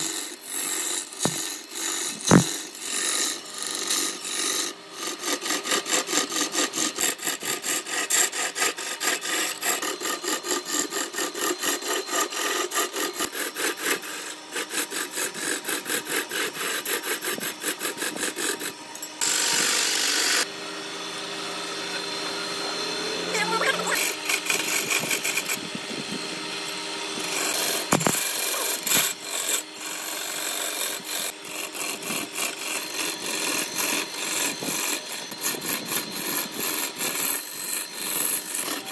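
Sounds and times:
wood lathe cutting rhythmically: 0:00.0 - 0:38.9
sharp knocks: 0:02.2 - 0:02.5.

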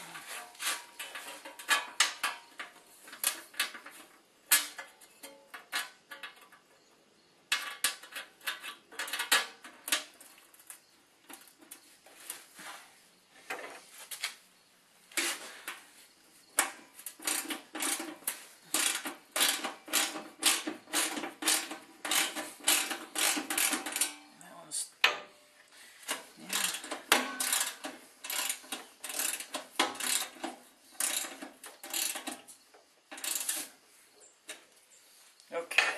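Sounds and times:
wrench and bolts clinking: 0:16.6 - 0:24.2, 0:26.0 - 0:32.5.

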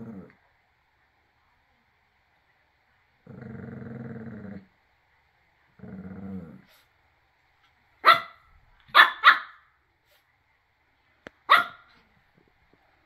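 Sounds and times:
small dog growling: 0:00.0 - 0:00.4, 0:03.2 - 0:04.7, 0:05.7 - 0:06.9
dog barking sharply: 0:08.0 - 0:09.6, 0:11.5 - 0:11.9.

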